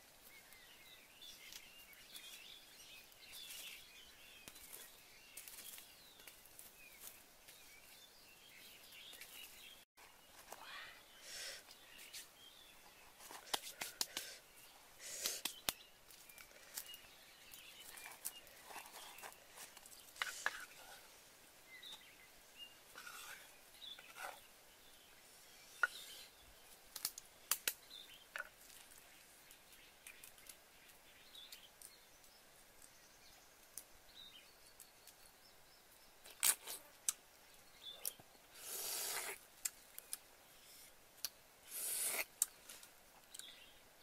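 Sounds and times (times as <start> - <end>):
rustling: 15.1 - 21.2.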